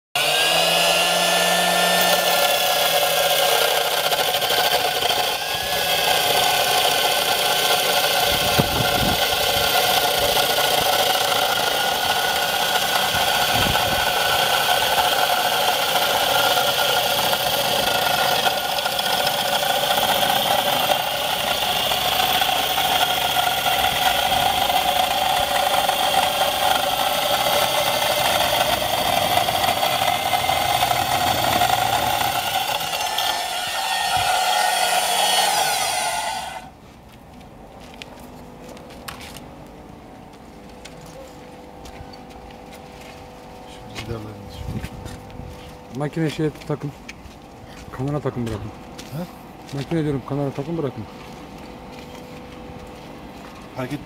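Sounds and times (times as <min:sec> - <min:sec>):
wall chaser motor whine: 0:00.2 - 0:54.0.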